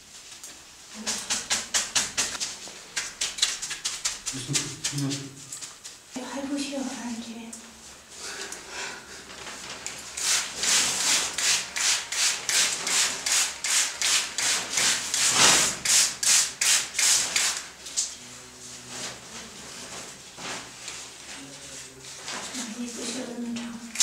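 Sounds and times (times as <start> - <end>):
rubbing strokes on paper: 1.0 - 6.0.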